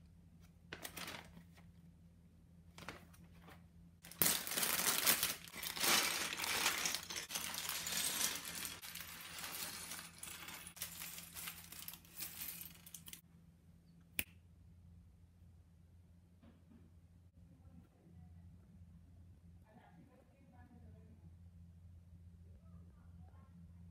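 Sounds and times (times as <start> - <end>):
plastic bags crinkling: 0.7 - 1.4, 4.0 - 13.2
plastic bricks clattering on wood: 4.1 - 12.0.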